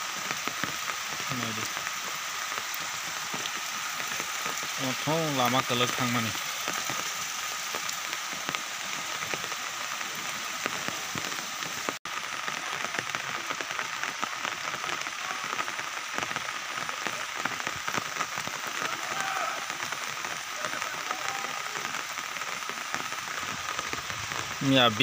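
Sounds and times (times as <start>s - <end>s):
steady rain falling: 0.0s - 25.0s.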